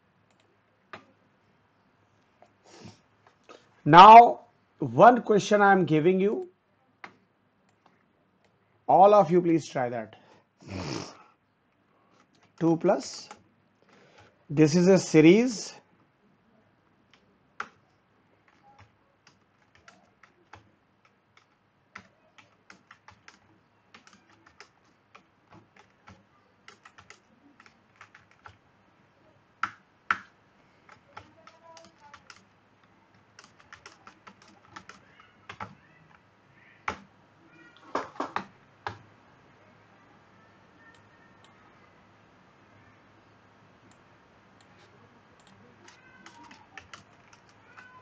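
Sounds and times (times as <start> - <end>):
typing on computer keyboard: 17.1 - 17.8, 18.4 - 28.6, 29.6 - 36.2, 36.8 - 37.1, 37.9 - 39.0, 45.4 - 48.0.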